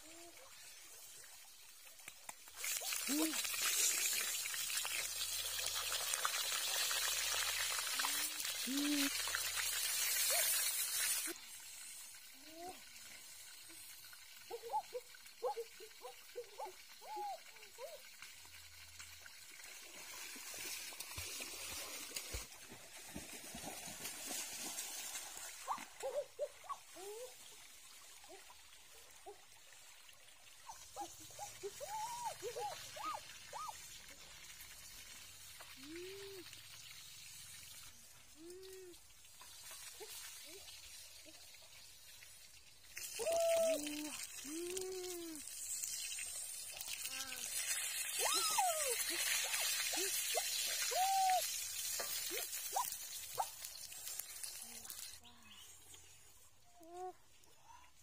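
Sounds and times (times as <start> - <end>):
stream water flowing: 0.0 - 58.0
drawn-out rising and falling calls: 30.7 - 33.8, 47.5 - 53.5.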